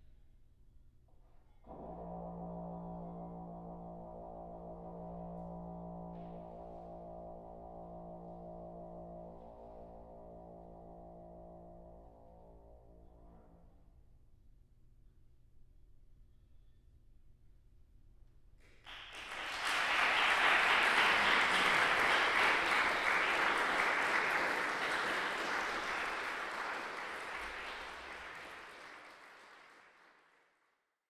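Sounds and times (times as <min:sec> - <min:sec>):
audience applauding: 0:18.8 - 0:30.6.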